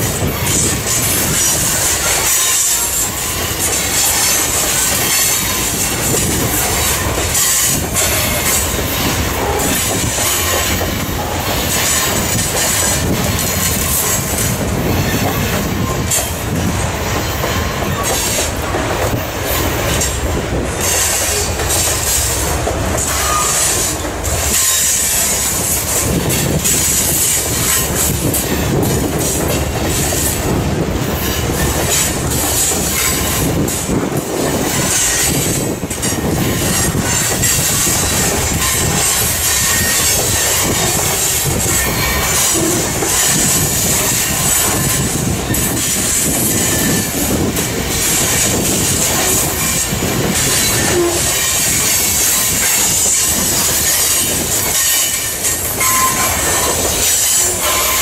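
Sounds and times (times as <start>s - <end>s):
train wheels rumbling on rails: 0.0s - 58.0s
wheels clicking over rail joints: 0.0s - 58.0s
high wheel squeal: 0.1s - 10.8s, 20.8s - 22.4s, 23.0s - 29.3s, 34.4s - 58.0s.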